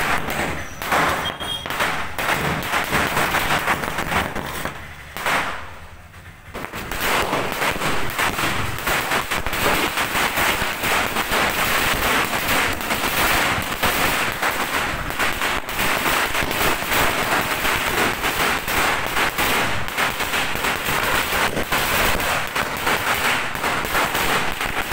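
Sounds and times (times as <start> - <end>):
firecrackers bursting: 0.0 - 24.9.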